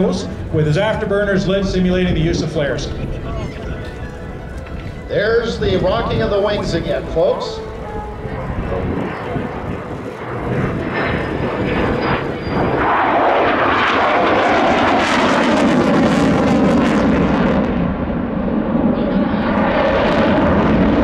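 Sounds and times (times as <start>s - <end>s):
jet passing in afterburner: 5.0s - 21.0s.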